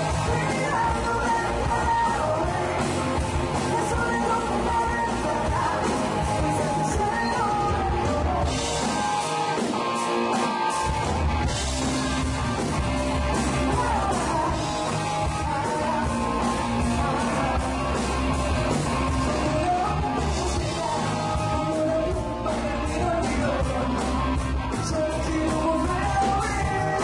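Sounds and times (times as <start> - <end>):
woman singing lead vocal: 0.0 - 8.8, 13.5 - 16.4, 19.2 - 24.0, 24.8 - 27.0
live rock band playing: 0.0 - 27.0.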